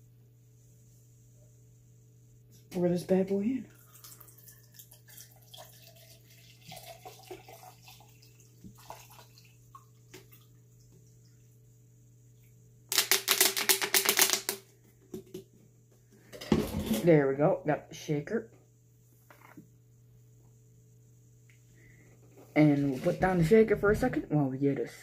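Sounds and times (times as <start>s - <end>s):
water pouring into plastic cup: 3.7s - 10.6s.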